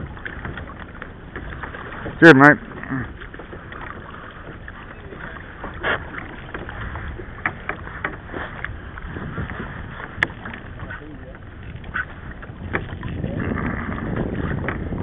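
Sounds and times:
water lapping around kayak: 0.0 - 15.0
wind: 0.0 - 15.0
sharp knocks and clicks: 7.4 - 8.8, 10.2 - 10.6.

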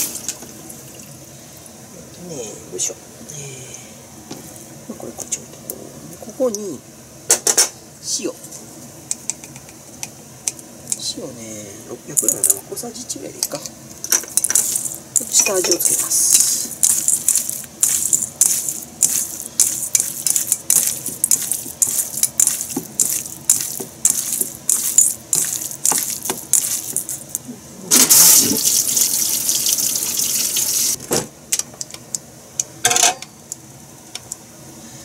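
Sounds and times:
water running from tap: 28.1 - 31.0.

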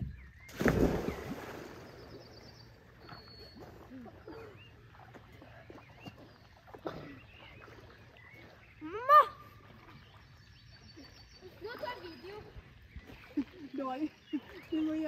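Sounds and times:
people splashing into lake: 0.4 - 10.3.

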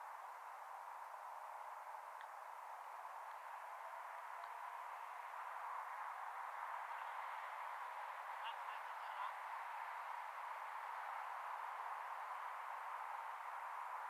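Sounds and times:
background hiss: 0.0 - 14.0.

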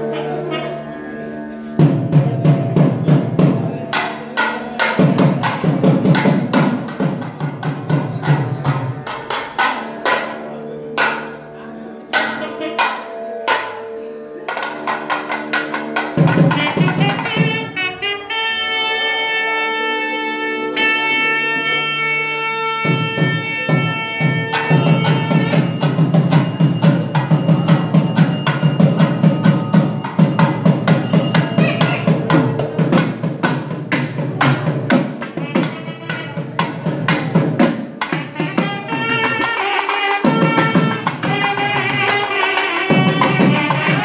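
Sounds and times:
reedy wind instrument melody: 0.0 - 5.8, 8.2 - 14.6, 15.4 - 33.8, 35.2 - 44.0
fast drum strokes: 22.8 - 44.0.

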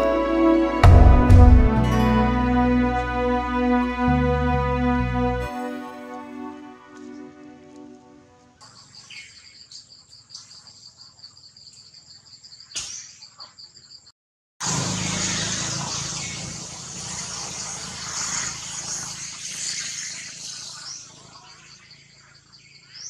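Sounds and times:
insects droning: 8.6 - 23.0.

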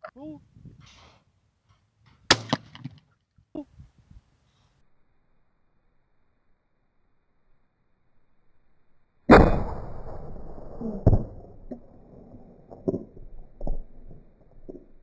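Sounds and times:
slowed shotgun shot booming: 2.3 - 3.0, 9.3 - 14.8.

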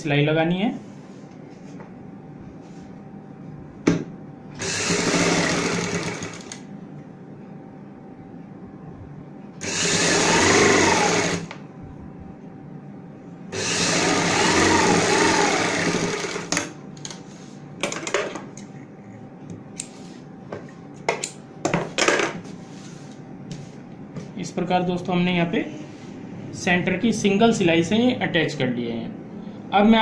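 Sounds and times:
sewing machine stitching: 4.6 - 6.6, 9.6 - 11.5, 13.6 - 16.7.

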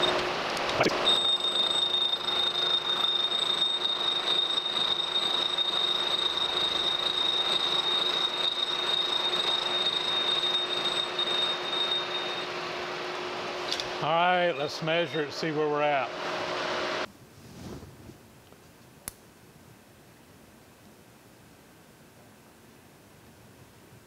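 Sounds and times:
milling machine cutting metal: 0.0 - 12.6
high constant whine: 0.0 - 17.2.

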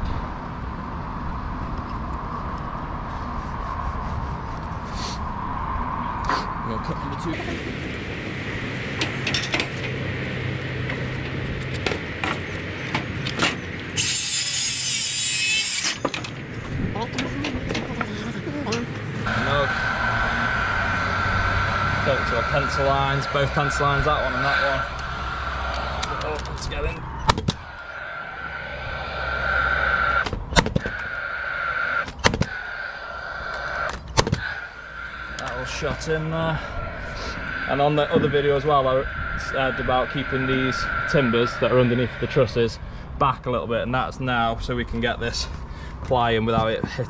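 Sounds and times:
nail gun fan whirring: 13.2 - 16.4
circular saw cutting timber: 13.9 - 16.1, 19.2 - 27.0.

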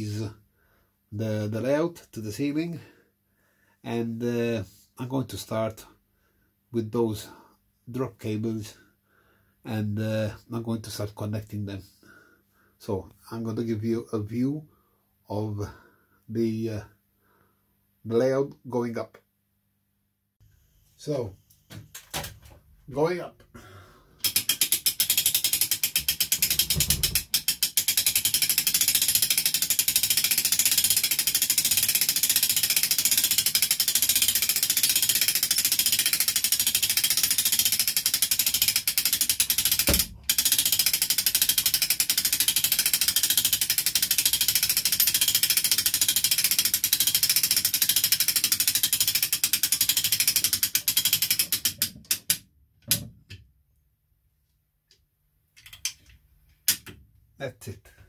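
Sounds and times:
hoist ratcheting clatter: 24.2 - 52.4.

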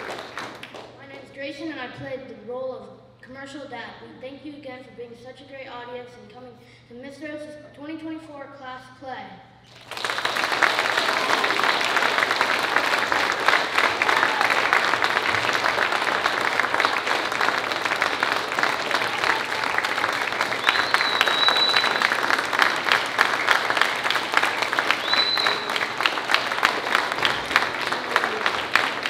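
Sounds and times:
audience applauding: 0.0 - 0.9, 9.7 - 29.0.

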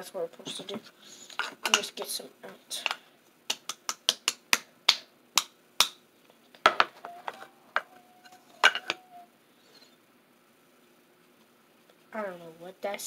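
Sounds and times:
faint steady tone: 7.0 - 11.0.

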